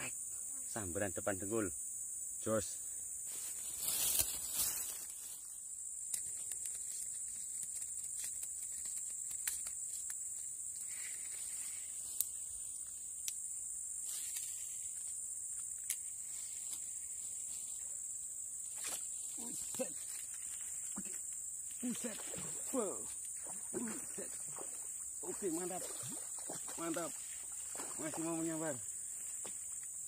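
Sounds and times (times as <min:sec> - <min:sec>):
insects chirping: 0:00.0 - 0:30.0
brief rustle: 0:03.4 - 0:05.1.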